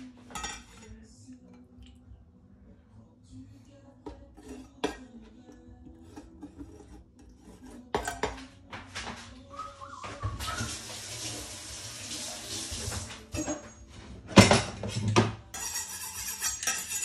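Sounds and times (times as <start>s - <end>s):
dishes and utensils clinking: 0.0s - 1.9s, 4.0s - 9.3s, 12.8s - 17.0s.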